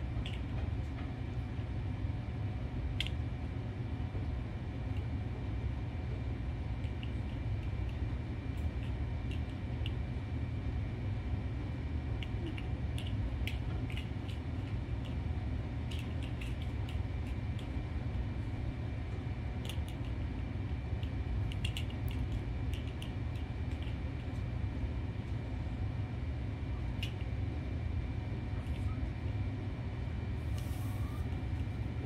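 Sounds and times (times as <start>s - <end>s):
low room hum: 0.0s - 32.0s
faint high whine: 30.4s - 32.0s.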